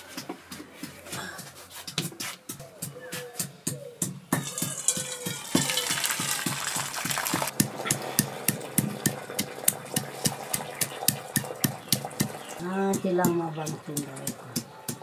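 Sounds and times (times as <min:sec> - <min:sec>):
stone pestle pounding garlic: 0:02.6 - 0:15.0
liquid trickling into steel bowl: 0:04.5 - 0:12.6.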